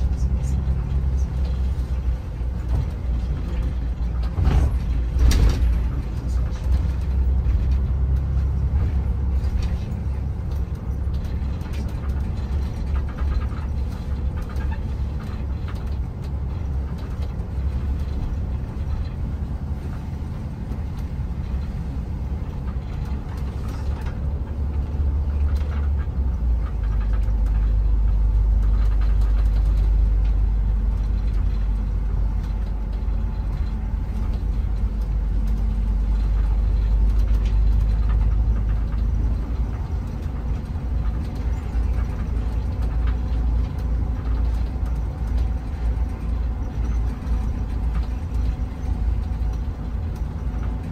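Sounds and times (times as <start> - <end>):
bus engine and road rumble: 0.0 - 50.9.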